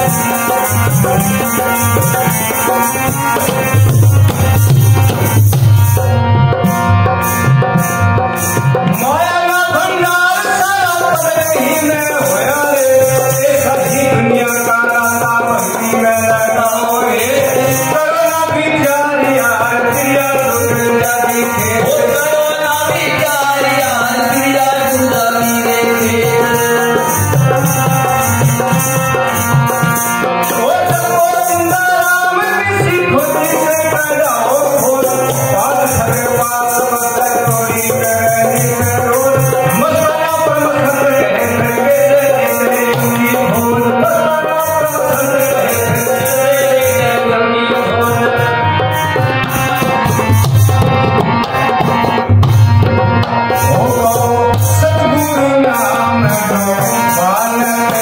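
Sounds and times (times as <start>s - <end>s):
man singing: 0.0s - 6.2s, 7.0s - 58.0s
hand drum beat: 0.0s - 10.5s, 49.5s - 55.4s
harmonium chords: 0.0s - 58.0s.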